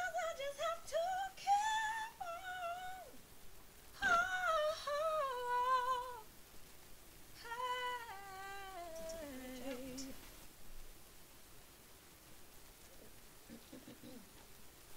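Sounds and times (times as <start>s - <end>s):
woman singing unaccompanied: 0.0s - 3.3s, 3.9s - 6.4s, 7.3s - 10.4s.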